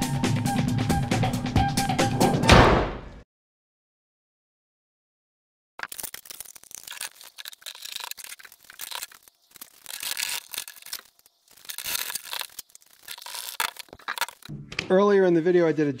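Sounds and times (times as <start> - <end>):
scraping and rustling: 5.8 - 14.5.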